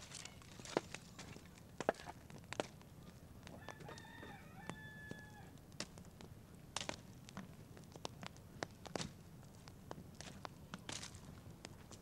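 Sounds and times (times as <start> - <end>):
fire crackling and clicking: 0.0 - 12.0
rooster crowing: 3.6 - 5.6.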